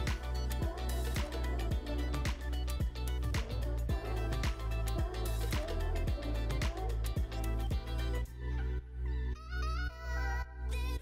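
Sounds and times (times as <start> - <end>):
music with kick drum beat: 0.0 - 8.2
held low bass: 0.0 - 9.3.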